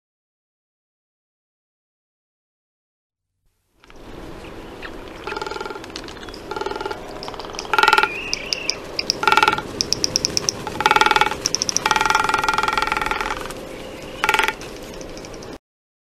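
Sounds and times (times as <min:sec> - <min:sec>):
rattling bird calls: 0:04.7 - 0:15.6.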